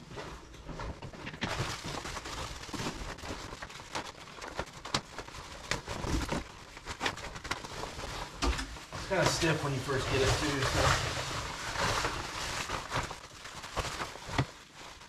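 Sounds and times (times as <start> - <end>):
synthetic fabric rustling and crinkling: 0.0 - 15.0.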